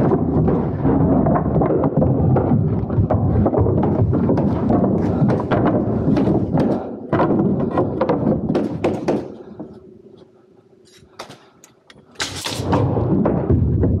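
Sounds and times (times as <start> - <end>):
wooden boards knocking and clattering: 0.0 - 9.8.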